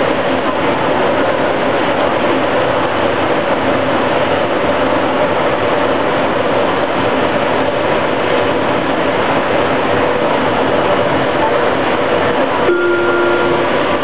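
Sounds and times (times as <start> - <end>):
constant hum: 0.0 - 14.0
light rail wheels rolling on rail: 0.0 - 14.0.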